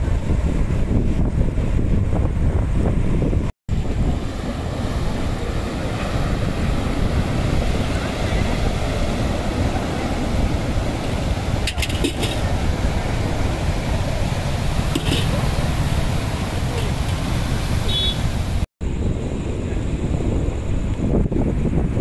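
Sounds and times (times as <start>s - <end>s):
wind buffeting microphone: 0.0s - 22.0s
waves breaking on rocky shore: 3.7s - 18.7s.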